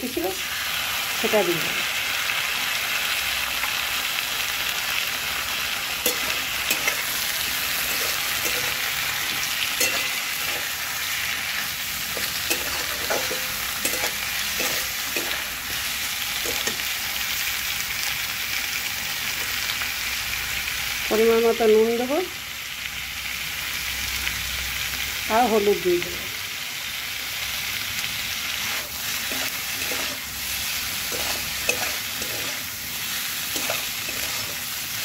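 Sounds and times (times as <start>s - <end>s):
vegetables sizzling in oil: 0.0s - 35.0s
metal spatula scraping pan: 6.0s - 11.1s, 12.1s - 16.9s, 28.6s - 34.8s.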